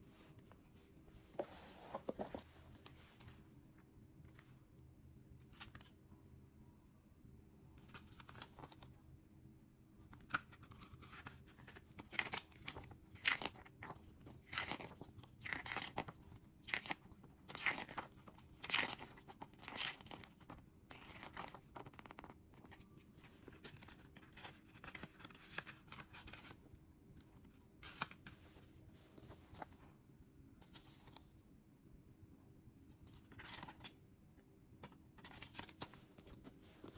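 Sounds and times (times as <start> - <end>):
paper rustling and crinkling: 1.3 - 3.4, 10.2 - 26.6, 34.8 - 36.9.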